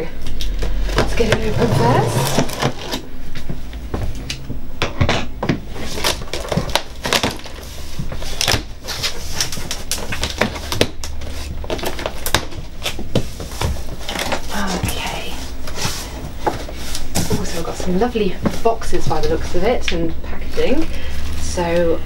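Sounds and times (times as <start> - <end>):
cardboard flaps scraped open: 0.8 - 3.1.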